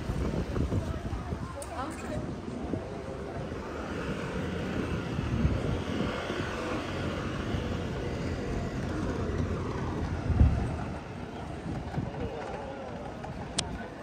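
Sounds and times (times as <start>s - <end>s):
vehicle passing: 3.0s - 11.6s.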